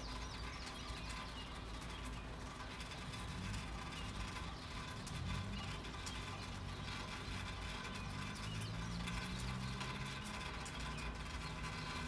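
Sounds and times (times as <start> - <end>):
birds chirping: 0.0 - 12.0
gentle rain: 0.0 - 12.0.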